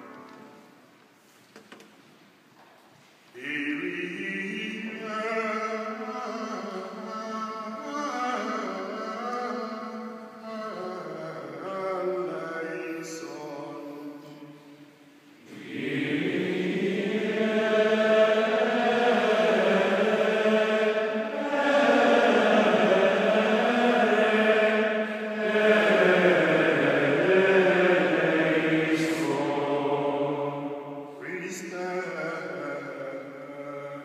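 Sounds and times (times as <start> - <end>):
voices singing chant in unison: 3.4 - 14.0, 15.4 - 34.0.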